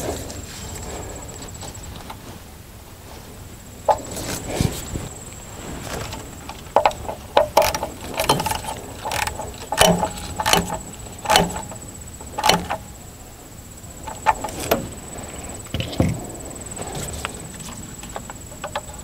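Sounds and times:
metal clinks and knocks: 6.0 - 13.0, 14.0 - 16.2, 17.6 - 19.0.

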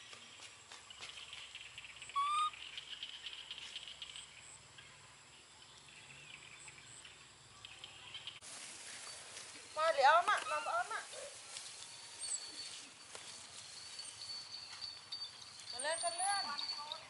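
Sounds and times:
baby monkey cooing: 2.1 - 2.6.

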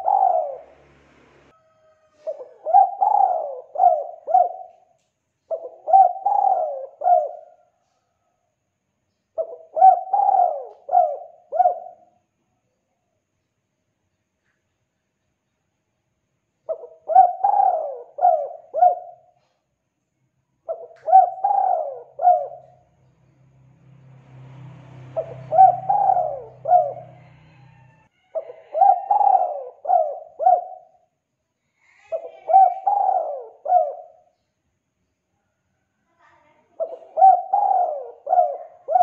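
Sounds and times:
dove cooing: 0.0 - 0.9, 2.1 - 4.9, 5.5 - 7.7, 9.4 - 12.1, 16.7 - 19.6, 20.7 - 22.9, 25.2 - 31.1, 32.0 - 34.3, 36.8 - 39.0.

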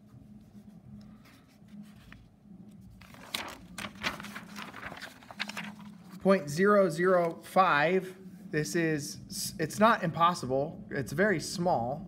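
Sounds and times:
faint steady hum: 0.0 - 12.0
paper rustling and crinkling: 0.5 - 6.2.

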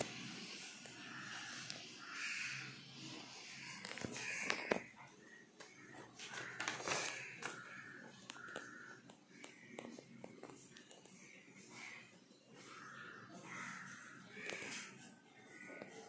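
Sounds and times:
faint voices: 0.0 - 16.0
book pages clicking: 3.8 - 4.8, 6.2 - 11.1
paper rustling: 5.7 - 8.8.

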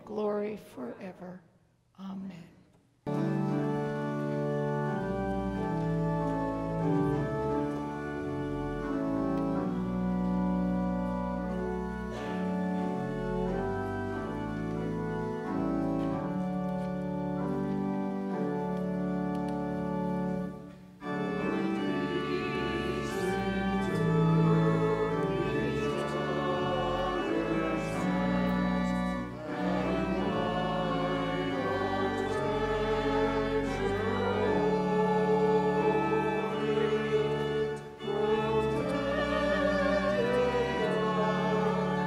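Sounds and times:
church pipe organ chords: 3.1 - 42.0
congregation and choir singing: 3.1 - 42.0.

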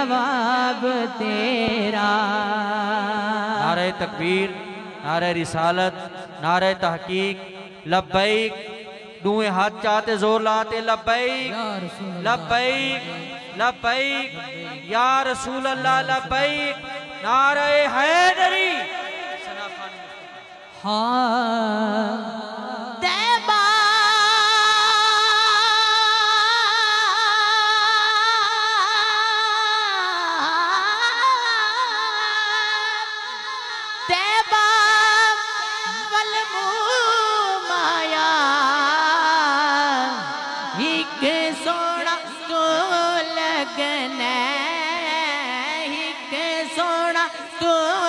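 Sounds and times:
young man singing into microphone: 0.0 - 48.0.

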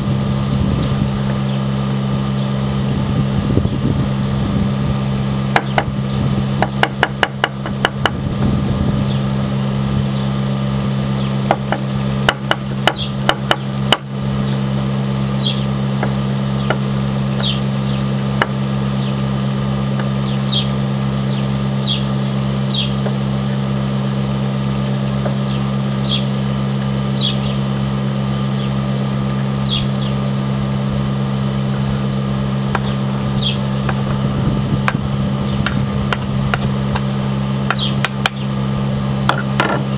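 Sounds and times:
steady low hum: 0.0 - 39.9
knife chopping on wooden board: 11.5 - 14.1.

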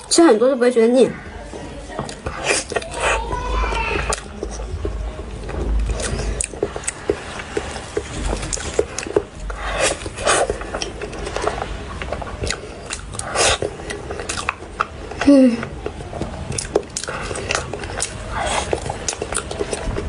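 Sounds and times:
chewing and wet mouth clicks: 2.1 - 3.2, 4.1 - 4.6, 5.8 - 15.2, 16.5 - 20.0
bite and mouth noise: 2.1 - 20.0.

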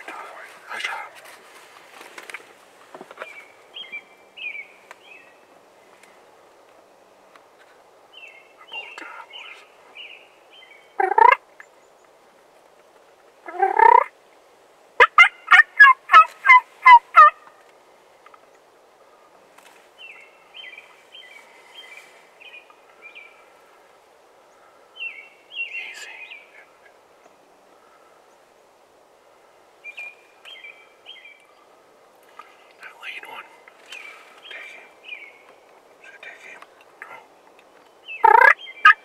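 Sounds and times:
turkey yelping: 11.0 - 11.4, 13.5 - 14.1, 15.0 - 17.4, 38.2 - 39.0.

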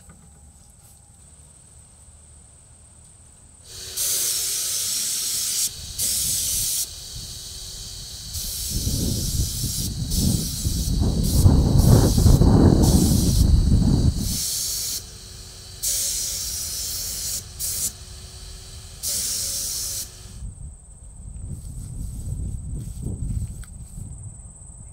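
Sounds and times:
faint steady hum: 0.0 - 24.9
spray gun hissing bursts: 3.7 - 20.4.

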